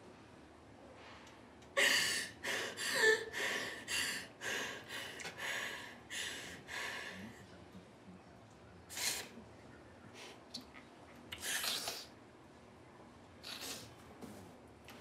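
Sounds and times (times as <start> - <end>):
woman sobbing: 1.8 - 7.1.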